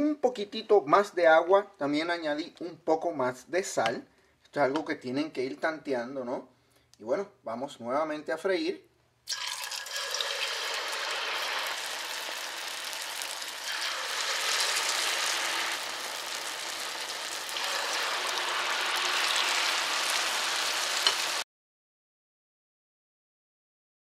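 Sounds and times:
batter sizzling in oil: 9.3 - 21.4.

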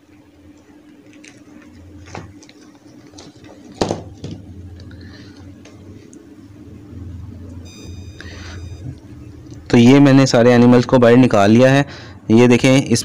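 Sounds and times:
plastic wrapping rustling: 0.9 - 5.6.

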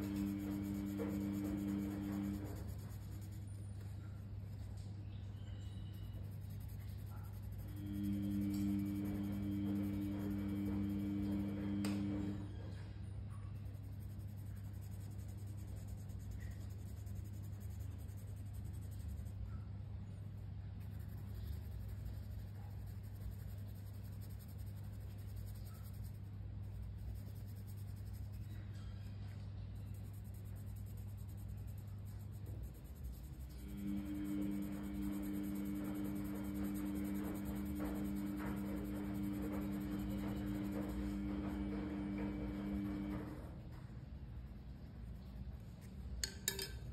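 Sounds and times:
colored pencil rubbing on paper: 0.0 - 12.9, 13.6 - 43.6
steady low hum: 0.0 - 46.9.

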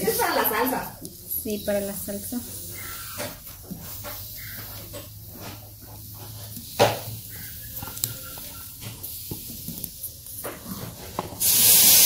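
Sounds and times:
loud steady hiss: 0.0 - 12.0
vegetables knocking on griddle: 5.4 - 7.2.

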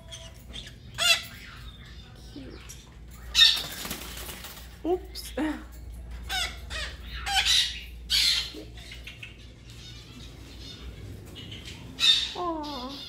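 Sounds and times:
soft parrot chatter: 0.0 - 13.0
parrots squawking harshly: 0.1 - 1.6, 6.3 - 8.6.

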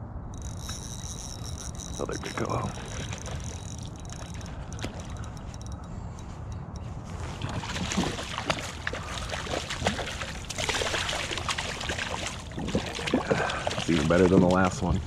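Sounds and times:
fish thrashing and splashing: 0.4 - 5.9, 7.1 - 15.0.

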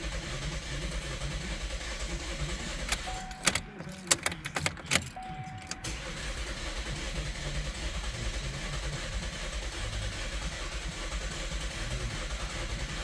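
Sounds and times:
car engine idling unevenly: 0.0 - 13.0
sharp clicks: 2.9 - 6.1
short beeps: 2.9 - 6.1.

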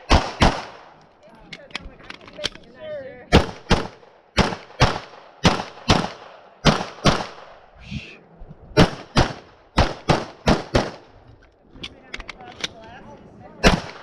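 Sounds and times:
pistol shots: 0.0 - 1.0, 3.3 - 7.6, 8.8 - 11.1, 13.6 - 14.0.

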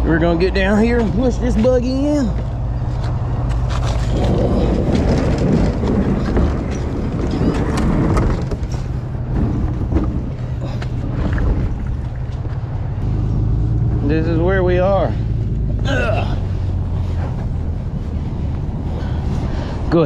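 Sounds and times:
steady low hum: 0.0 - 20.0
plastic hull scraping on concrete: 3.6 - 12.5.

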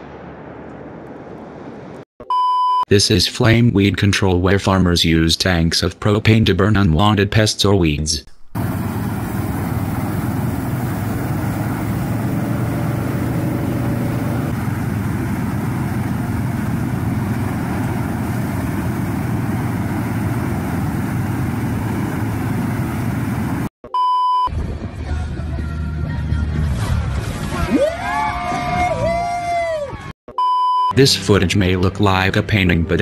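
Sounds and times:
short electronic beep: 2.2 - 2.8, 23.8 - 24.5, 30.3 - 31.0
flame burners rushing: 8.5 - 23.7
tractor engine running: 8.5 - 23.7.

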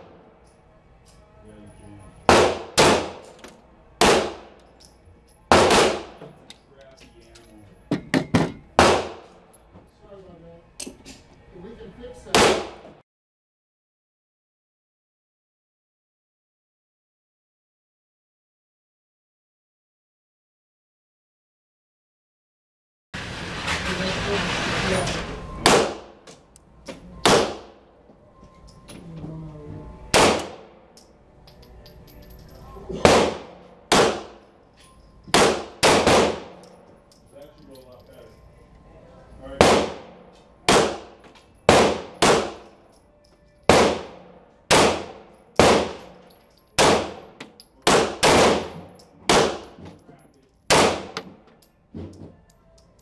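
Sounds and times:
pistol shots: 2.3 - 3.4, 4.0 - 4.6, 5.5 - 6.2, 8.8 - 9.3, 12.3 - 12.8, 25.6 - 26.2, 27.2 - 27.8, 30.1 - 30.8, 33.0 - 34.4, 35.3 - 36.7, 39.6 - 42.7, 43.7 - 46.2, 46.8 - 49.8, 50.7 - 51.4.

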